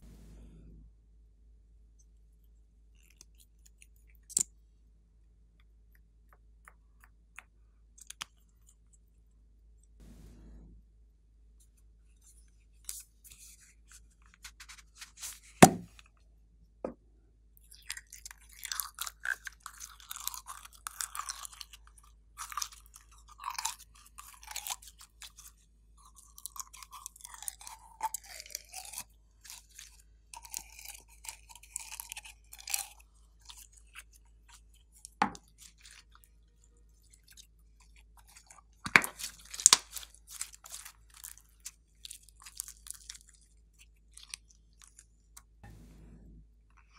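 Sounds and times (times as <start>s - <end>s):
plastic container knocks: 15.6s - 15.9s
slime crackling and squelching: 37.0s - 45.0s.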